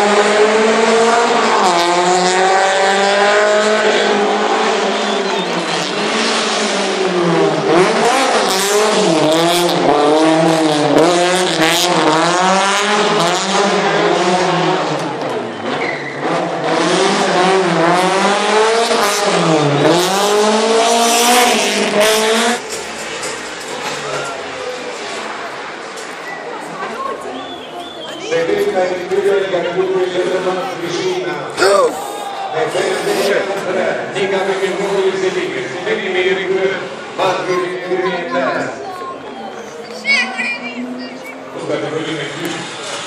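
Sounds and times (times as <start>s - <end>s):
race car engine revving: 0.0s - 43.0s
tyre squeal: 15.5s - 16.3s.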